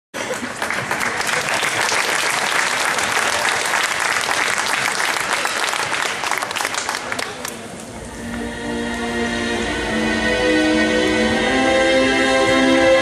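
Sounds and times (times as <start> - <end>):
audience applauding: 0.2 - 7.8.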